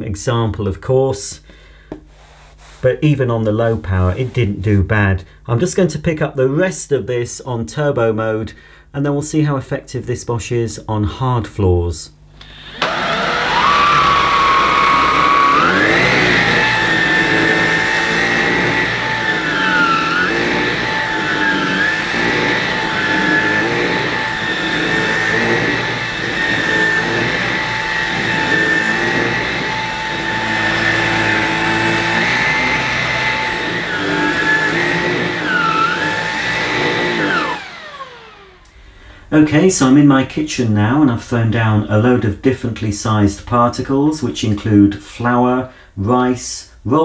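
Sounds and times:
vacuum cleaner motor whining: 12.4 - 38.8.

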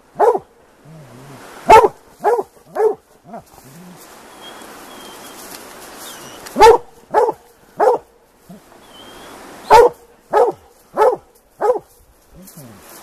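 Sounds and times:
dogs barking: 0.1 - 0.5, 1.6 - 3.5, 6.4 - 8.1, 9.7 - 11.9.

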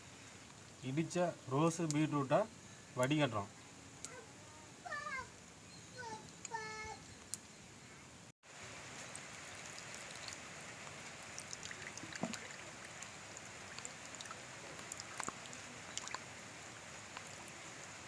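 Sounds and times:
steady low hiss: 0.0 - 18.0
juice trickling into a bowl: 8.5 - 18.0.

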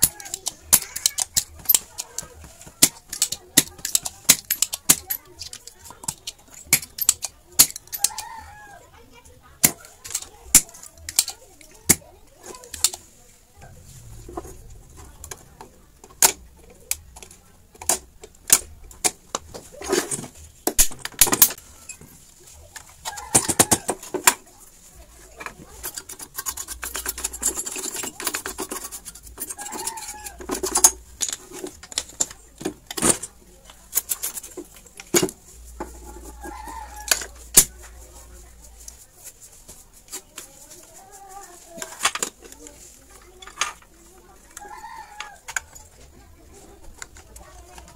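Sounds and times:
hand tools clicking and knocking: 0.0 - 8.6, 9.6 - 13.0, 15.0 - 22.1, 22.8 - 24.5, 25.2 - 38.0, 40.1 - 46.1.

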